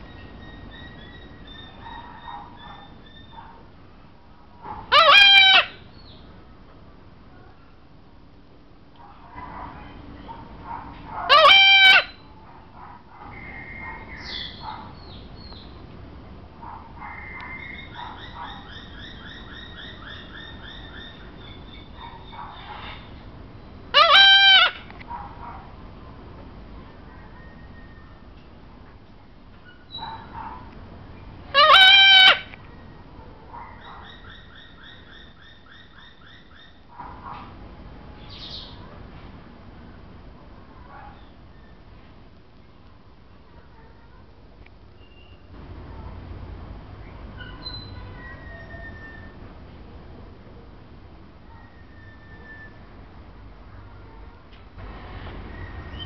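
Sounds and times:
birds chirping: 0:00.0 - 0:03.6, 0:13.2 - 0:15.8, 0:16.6 - 0:25.2, 0:29.6 - 0:30.6, 0:31.2 - 0:37.4, 0:38.2 - 0:38.9, 0:45.0 - 0:45.6, 0:47.0 - 0:49.4, 0:55.4 - 0:56.0
cockatoo loud call: 0:04.8 - 0:05.9, 0:11.1 - 0:12.4, 0:17.0 - 0:23.2, 0:23.9 - 0:24.9, 0:31.5 - 0:32.9, 0:47.3 - 0:49.4, 0:51.5 - 0:52.9
bird squawking: 0:04.9 - 0:05.8, 0:11.3 - 0:12.3, 0:24.0 - 0:24.9, 0:31.6 - 0:32.5.

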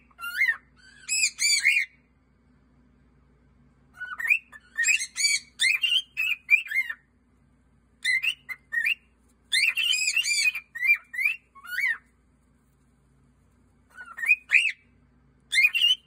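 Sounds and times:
cockatiel whistling: 0:00.0 - 0:02.0, 0:04.0 - 0:07.0, 0:08.0 - 0:12.1, 0:13.9 - 0:14.9, 0:15.5 - 0:16.0.

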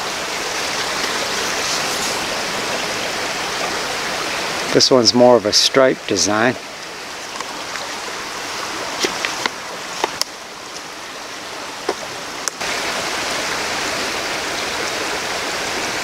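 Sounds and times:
rocky creek running: 0:00.0 - 0:16.0.

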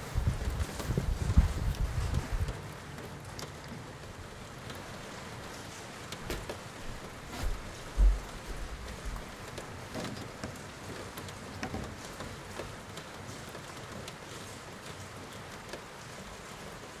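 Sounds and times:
rain falling: 0:00.0 - 0:17.0
dull low thumps: 0:07.4 - 0:09.2.

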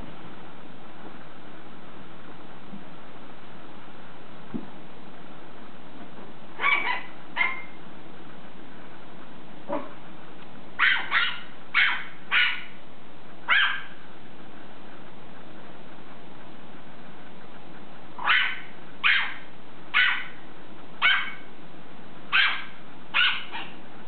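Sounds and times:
small dog yapping: 0:06.6 - 0:07.8, 0:10.8 - 0:12.8, 0:13.5 - 0:14.0, 0:18.2 - 0:20.4, 0:21.0 - 0:21.5, 0:22.3 - 0:23.8.

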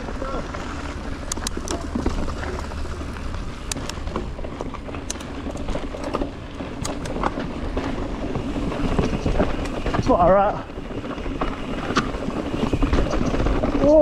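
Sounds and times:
bike clicks and rattles: 0:00.0 - 0:14.0
tyres on dirt: 0:00.0 - 0:14.0
wind rumble on microphone: 0:00.0 - 0:14.0.

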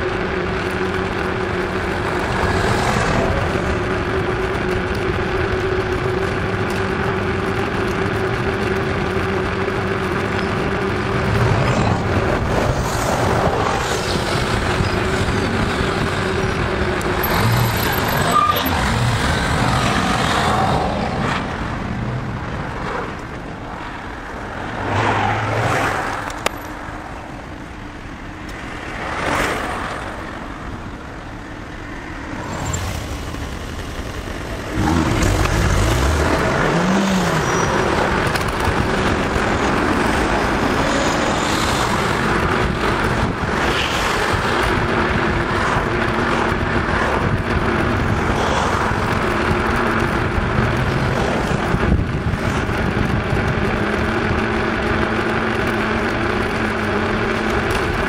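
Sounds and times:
bicycle tyre hum: 0:00.0 - 0:58.0
cars passing by: 0:00.0 - 0:58.0
wind on microphone: 0:33.4 - 0:54.5.

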